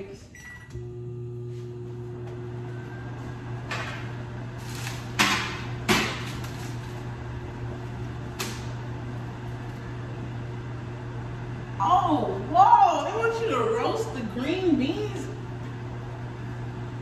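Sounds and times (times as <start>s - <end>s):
microwave oven humming: 0.0s - 17.0s
kitchen items knocking and clattering: 5.1s - 6.6s.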